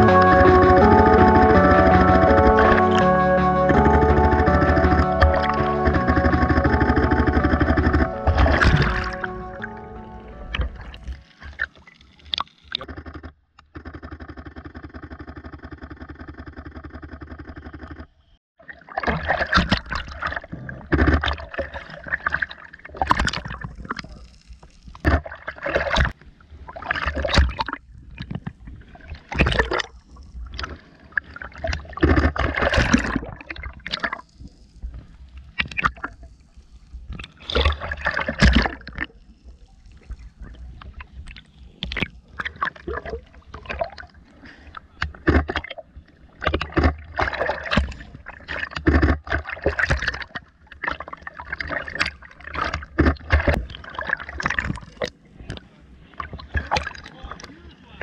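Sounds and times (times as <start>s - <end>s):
steady drone: 0.0s - 11.2s
water splashing on camera: 8.0s - 12.9s, 37.1s - 55.6s.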